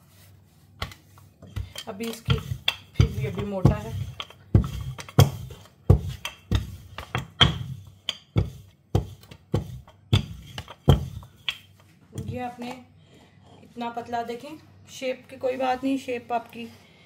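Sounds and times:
rolling pin knocking on countertop: 0.8s - 12.4s.

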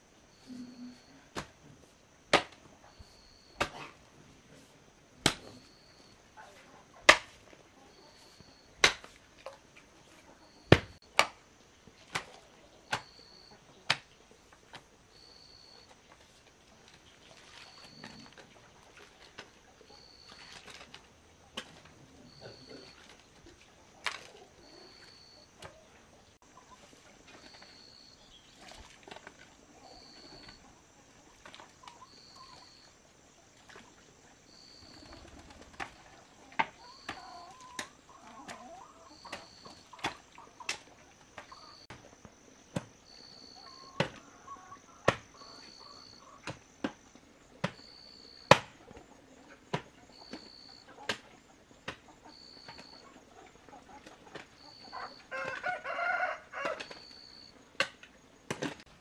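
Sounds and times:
hoe blade chopping earth: 1.3s - 1.6s, 2.3s - 2.7s, 3.5s - 4.0s, 5.2s - 5.7s, 7.1s - 7.4s, 8.8s - 9.2s, 10.7s - 11.4s, 45.1s - 45.3s, 48.5s - 48.8s.

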